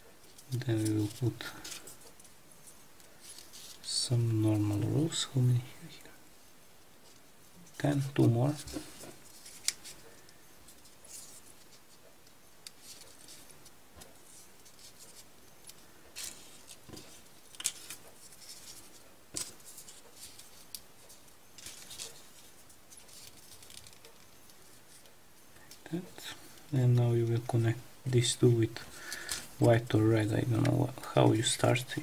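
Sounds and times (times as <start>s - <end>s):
paper rustling and crinkling: 0.2s - 5.2s, 7.0s - 12.0s, 12.6s - 25.1s
crisp paper clicks and scrapes: 0.3s - 2.3s, 7.8s - 12.0s, 12.6s - 25.1s.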